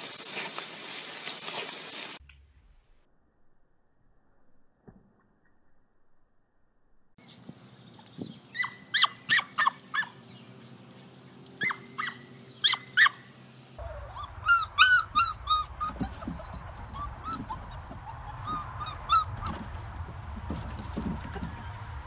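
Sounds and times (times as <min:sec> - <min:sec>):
puppies whining and yipping: 0:08.4 - 0:10.2, 0:11.6 - 0:20.0
small dog yapping: 0:08.5 - 0:10.2, 0:11.6 - 0:19.7.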